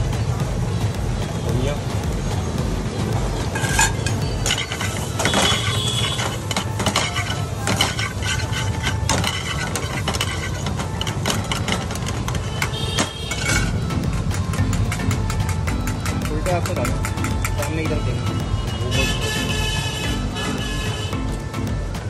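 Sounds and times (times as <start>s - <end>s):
metal spatula scraping a pan: 3.6s - 13.8s.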